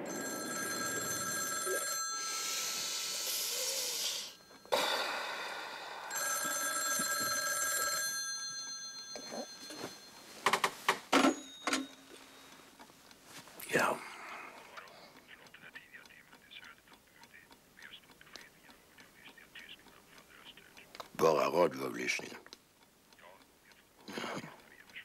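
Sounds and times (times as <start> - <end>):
telephone bell ringing: 0.0 - 12.5
sharp knocks and clatters: 10.4 - 11.9.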